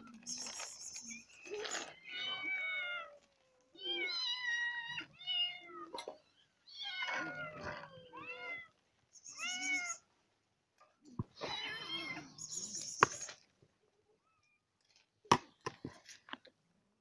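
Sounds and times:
cats meowing: 0.0s - 10.1s, 11.1s - 12.9s.

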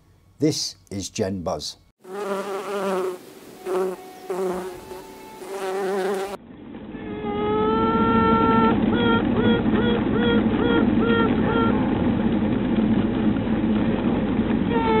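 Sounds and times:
queen bee tooting: 2.0s - 6.4s, 7.0s - 11.8s.

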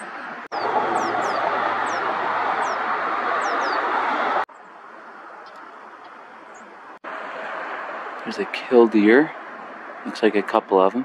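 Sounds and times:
finches chirping: 0.0s - 3.8s
loud rushing noise: 0.5s - 4.5s, 7.0s - 10.1s.

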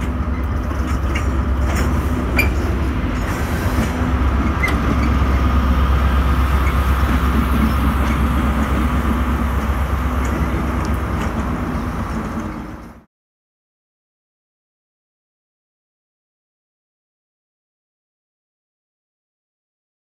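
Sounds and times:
locomotive engine hum and rumble: 0.0s - 13.1s.

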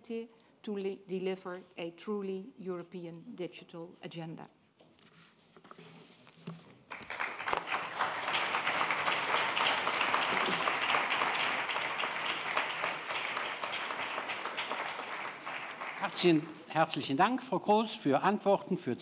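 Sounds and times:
audience applauding: 6.9s - 16.7s.

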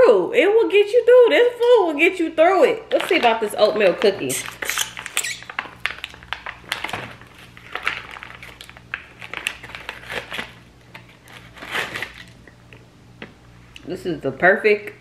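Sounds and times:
plastic wrapper crinkling: 2.8s - 12.6s
packaging tearing: 2.9s - 12.4s.

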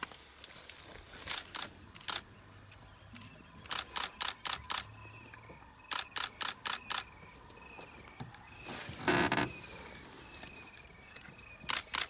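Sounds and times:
camera shutter burst clicks: 1.3s - 2.3s, 3.1s - 4.9s, 5.9s - 7.1s, 11.7s - 12.0s.

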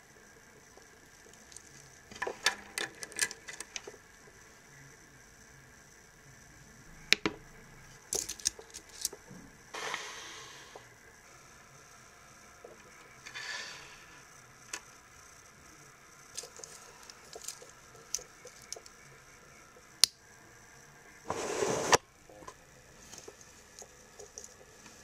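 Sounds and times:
watch bracelet clicking and clinking: 8.1s - 9.2s.

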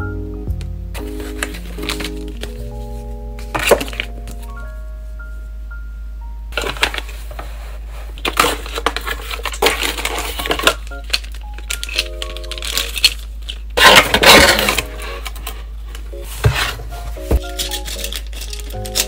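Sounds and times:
soft background music: 0.0s - 7.8s, 9.9s - 13.3s, 14.3s - 19.0s
cardboard insert scraping: 1.0s - 4.4s, 13.8s - 18.6s
cardboard and plastic bag rustling: 1.0s - 4.6s, 6.6s - 19.0s.

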